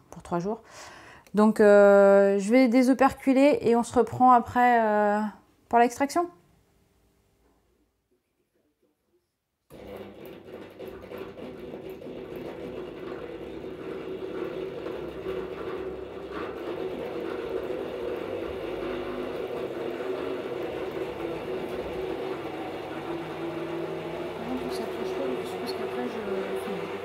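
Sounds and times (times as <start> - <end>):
honey extractor motor whirring: 9.7 - 27.0.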